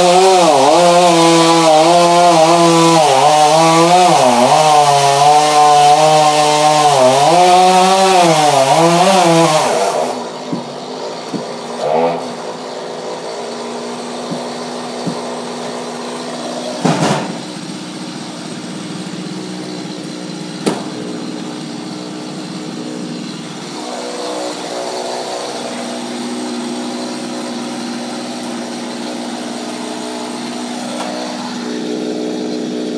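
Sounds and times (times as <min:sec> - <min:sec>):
chainsaw idling: 0:00.0 - 0:32.9
loud thud: 0:16.8 - 0:17.5, 0:20.6 - 0:21.0
sharp knock: 0:20.6 - 0:20.9.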